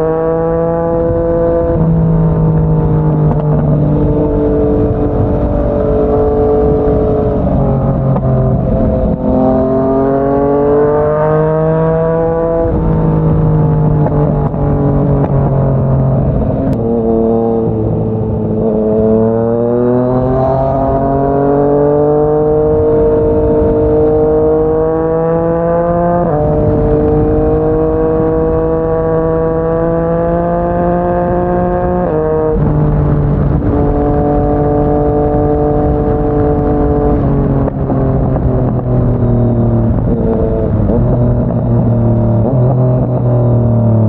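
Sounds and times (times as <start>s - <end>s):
motorcycle engine accelerating: 0.0s - 44.0s.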